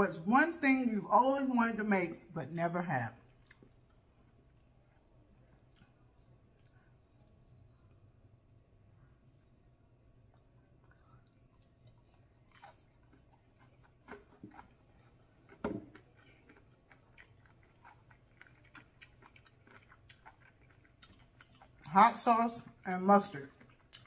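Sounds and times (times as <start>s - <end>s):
chewing fried shrimp: 3.1s - 8.2s, 9.9s - 24.0s.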